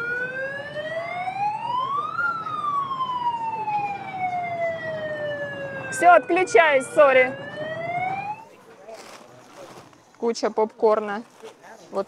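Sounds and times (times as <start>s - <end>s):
siren wailing: 0.0s - 8.6s
crowd hubbub in a hall: 0.0s - 12.0s.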